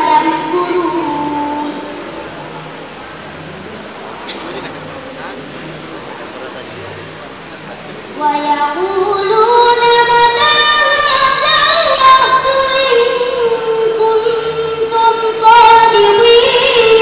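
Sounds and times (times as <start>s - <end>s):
girl reciting melodically: 0.0s - 2.2s, 8.2s - 17.0s.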